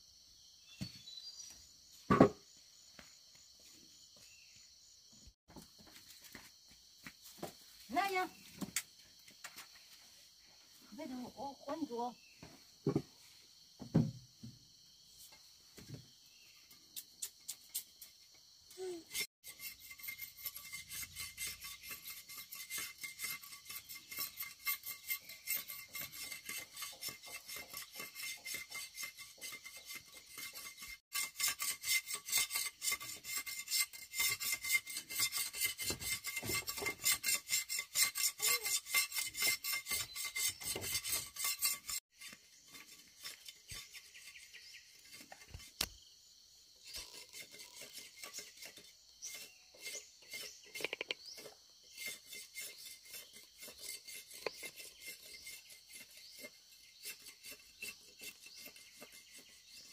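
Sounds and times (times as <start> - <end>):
knife scraping sugarcane: 17.0 - 46.0, 46.8 - 59.9.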